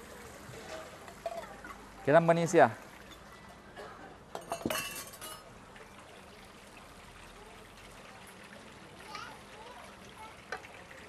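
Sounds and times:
wok simmering hiss: 0:00.0 - 0:04.3
kitchenware clinking and clattering: 0:00.6 - 0:01.8, 0:03.1 - 0:05.5.

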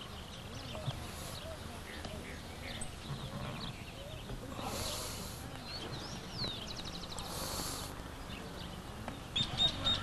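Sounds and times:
background noise: 0:00.0 - 0:10.0
bursts of hiss: 0:07.2 - 0:08.0.

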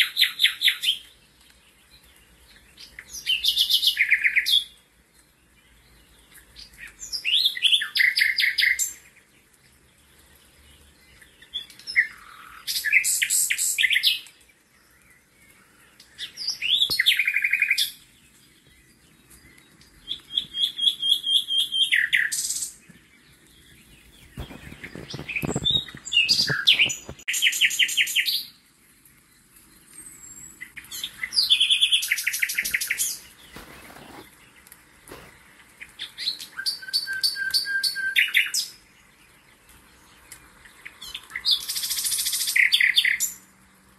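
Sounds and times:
songbird chirping and trilling: 0:00.0 - 0:43.9
rustling or splashing: 0:23.4 - 0:27.4, 0:32.0 - 0:36.0.

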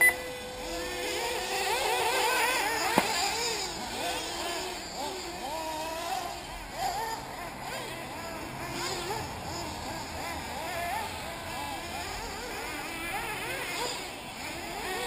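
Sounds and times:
rc car engines whining: 0:00.0 - 0:15.0.

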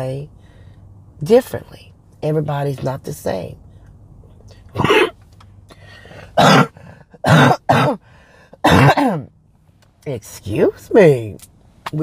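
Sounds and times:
woman coughing: 0:04.8 - 0:05.2, 0:06.4 - 0:08.0, 0:08.6 - 0:09.3.

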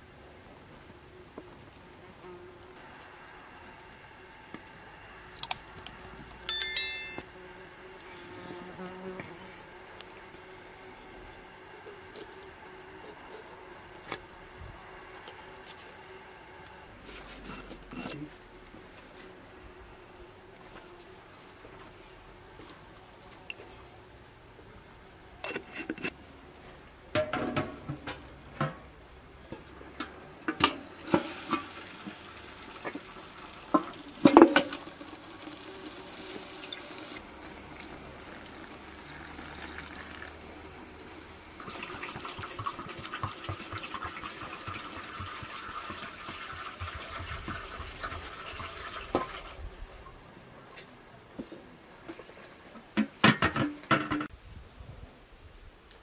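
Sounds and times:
knocks and clinks against bowl: 0:06.5 - 0:07.3
water pouring from jug: 0:31.2 - 0:40.9, 0:41.5 - 0:49.6
hands mixing flour in metal bowl: 0:41.6 - 0:48.3.

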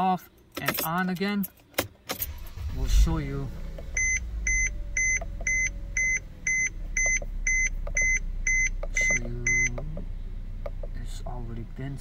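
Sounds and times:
car warning chime beeping: 0:03.5 - 0:10.9.

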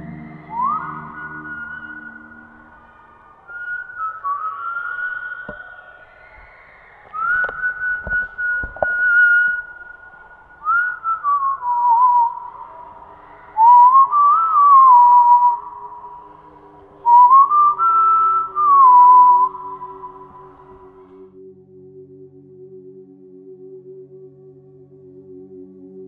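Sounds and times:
person whistling a tune: 0:00.0 - 0:12.8, 0:13.6 - 0:16.2, 0:17.0 - 0:20.6.

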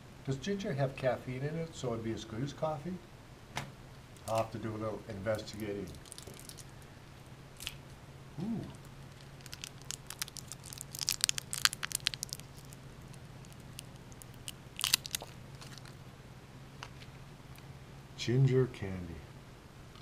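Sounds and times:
paper wrapper crinkling: 0:05.4 - 0:06.8, 0:08.8 - 0:16.0.

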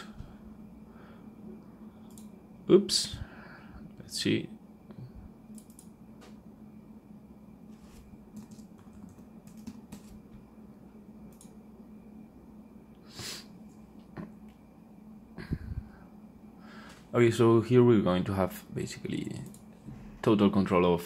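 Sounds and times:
faint steady hum: 0:00.0 - 0:21.0
keyboard keys clicking: 0:08.3 - 0:10.2.

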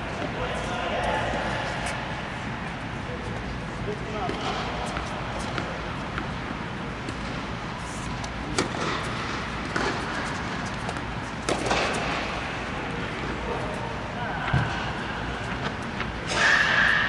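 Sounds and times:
tennis balls struck by racquets: 0:08.2 - 0:12.5.

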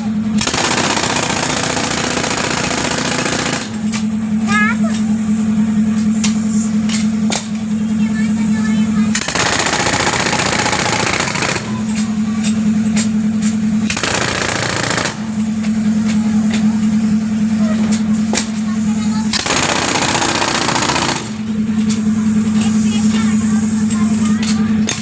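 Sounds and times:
jackhammer breaking concrete: 0:00.0 - 0:04.7, 0:09.0 - 0:12.3, 0:13.8 - 0:15.6, 0:18.3 - 0:21.5.

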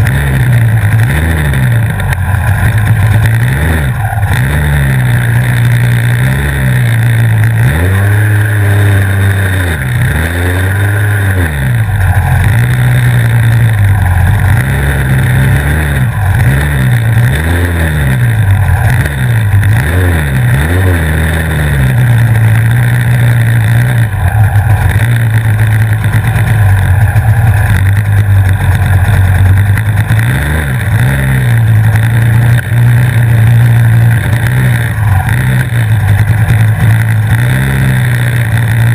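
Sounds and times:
two-stroke kart engine revving: 0:00.0 - 0:38.9.

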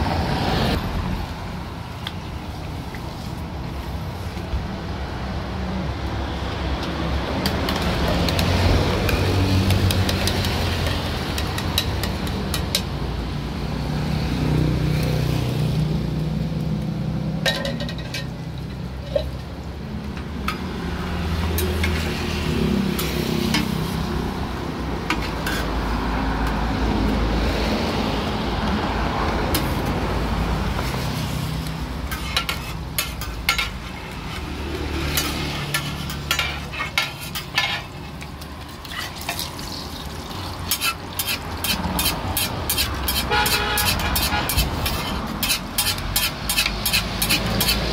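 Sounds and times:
oil sizzling on a griddle: 0:07.4 - 0:14.0, 0:30.7 - 0:47.9
metal spatulas scraping a pan: 0:09.1 - 0:12.8, 0:21.5 - 0:23.9, 0:25.1 - 0:25.8, 0:32.0 - 0:38.1, 0:38.8 - 0:40.0, 0:40.7 - 0:47.9.

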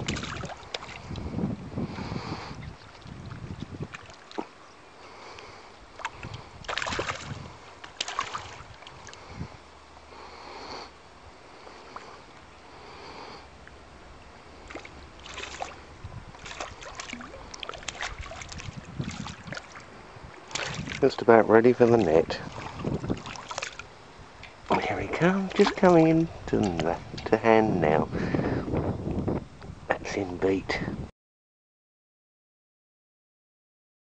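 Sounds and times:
river water splashing: 0:00.0 - 0:01.2, 0:02.6 - 0:09.4, 0:13.6 - 0:27.0.

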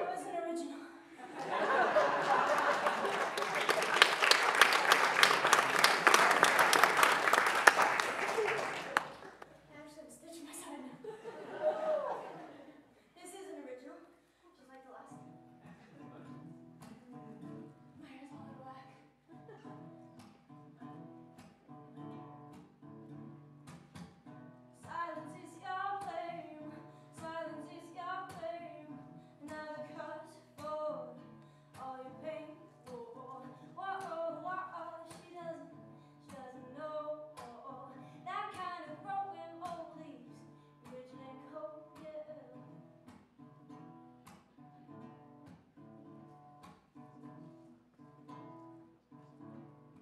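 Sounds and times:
woman singing: 0:00.0 - 0:01.0, 0:24.8 - 0:42.8
acoustic guitar: 0:00.0 - 0:11.0, 0:14.2 - 0:50.0.

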